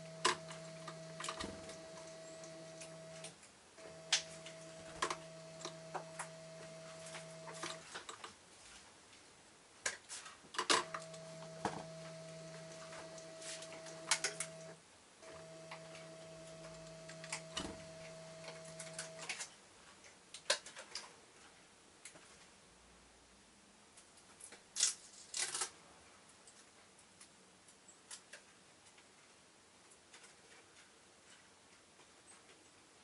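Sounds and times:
steady low hum: 0.0s - 8.0s, 10.8s - 19.3s.

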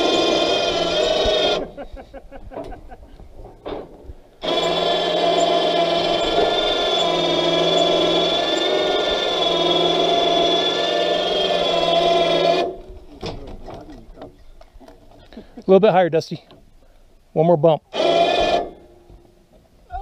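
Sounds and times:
electric winch motor whine: 0.0s - 1.8s, 4.4s - 12.8s, 17.9s - 19.0s.

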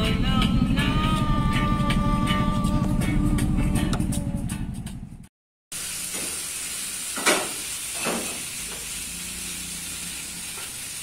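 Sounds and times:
music: 0.0s - 5.3s
food sizzling in a pan: 5.7s - 11.0s.

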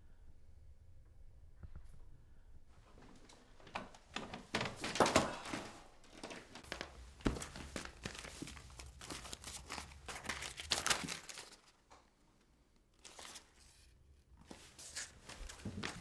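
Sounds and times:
paper rustling and crinkling: 3.7s - 11.9s, 12.9s - 16.0s.

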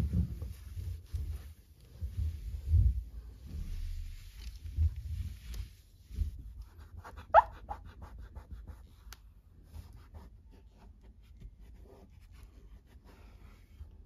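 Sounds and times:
wet wipe squeak: 7.3s - 7.5s.

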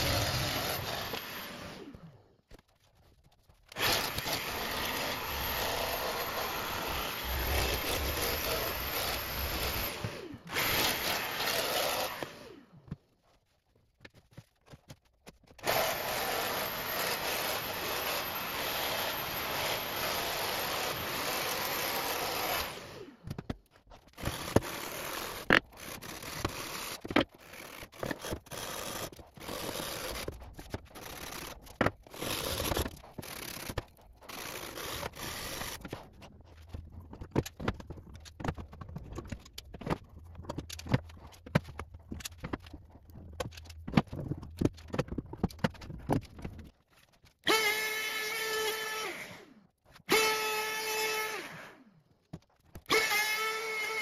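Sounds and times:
router running: 0.0s - 1.9s, 15.6s - 23.2s
jigsaw running: 0.0s - 2.9s, 3.6s - 12.7s, 15.5s - 23.3s, 24.0s - 42.8s, 47.4s - 51.9s, 52.8s - 54.0s
sandpaper scraping wood: 24.2s - 36.2s.

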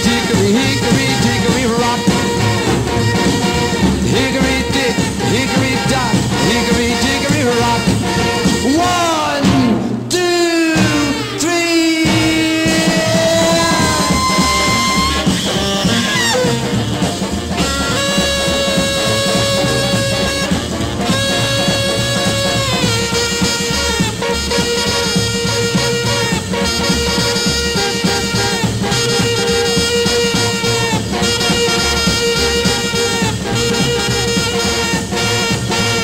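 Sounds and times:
band keeping steady beat: 0.0s - 36.0s
saxophone long notes: 10.8s - 36.0s.

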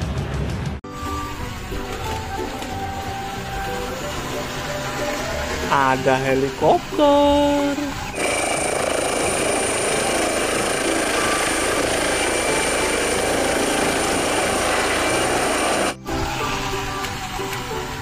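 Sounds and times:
high turbine whine: 1.0s - 18.0s
helicopter rotor noise: 3.7s - 16.1s.

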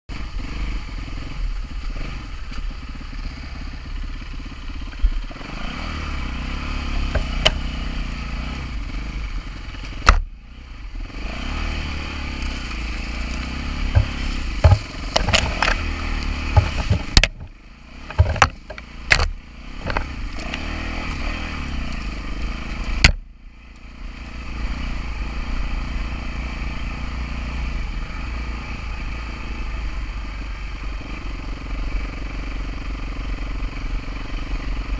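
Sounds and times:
dirt bike engine revving: 0.1s - 23.3s, 23.9s - 34.9s
knocks and clatters from bike: 7.0s - 7.8s, 9.8s - 10.3s, 13.2s - 20.7s.

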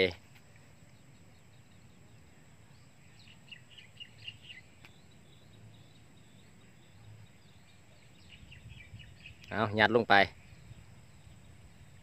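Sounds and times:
faint bird chirping: 0.0s - 12.0s
sharp tick: 4.8s - 5.0s.

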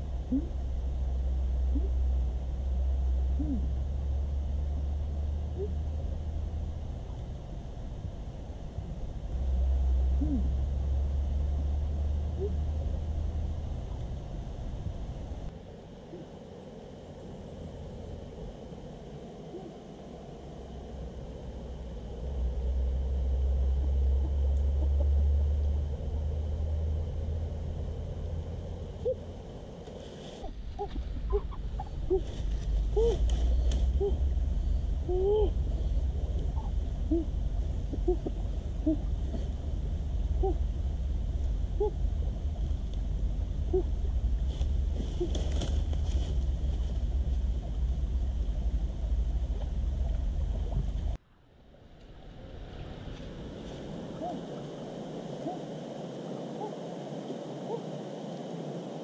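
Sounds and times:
low wind rumble on microphone: 0.0s - 59.0s.

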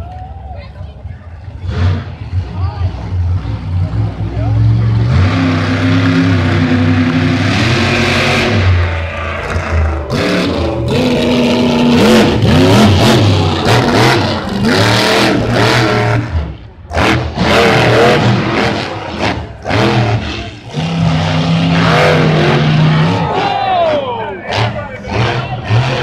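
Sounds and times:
monster truck engine revving: 1.3s - 26.0s.

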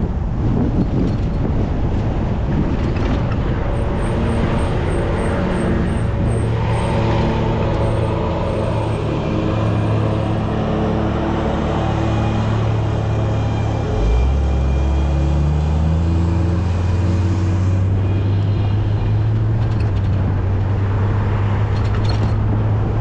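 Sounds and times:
car engine hum: 0.0s - 23.0s
road noise: 0.0s - 23.0s.

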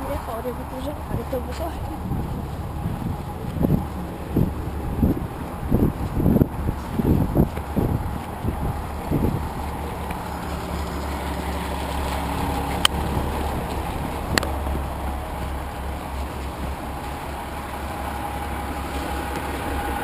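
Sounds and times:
bus engines idling: 0.0s - 20.0s.

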